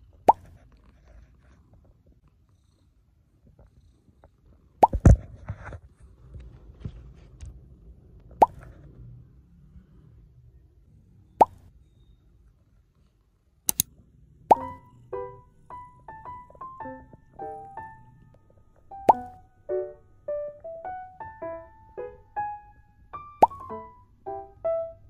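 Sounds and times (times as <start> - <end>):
faint low background noise: 0.0 - 25.0
cartoon plop pops: 4.8 - 5.1, 14.5 - 14.8, 19.1 - 19.4, 23.4 - 23.8.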